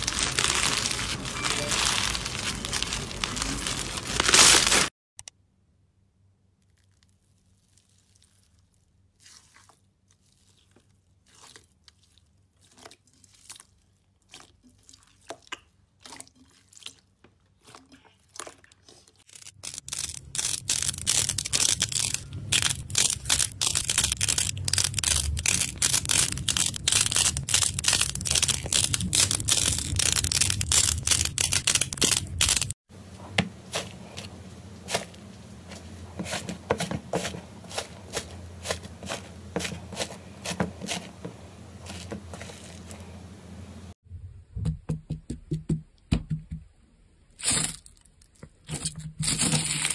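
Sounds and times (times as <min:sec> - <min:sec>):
crunchy crackling of pressed clay balls: 0:00.0 - 0:04.9, 0:06.4 - 0:43.4
crusted slime crackling: 0:00.0 - 0:04.9, 0:19.2 - 0:32.8
gel beads squishing: 0:19.2 - 0:32.8.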